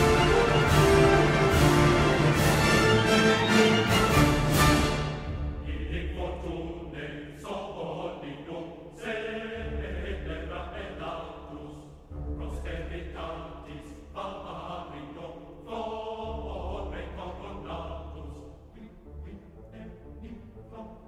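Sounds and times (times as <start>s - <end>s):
massed singing voices: 0.0s - 21.0s.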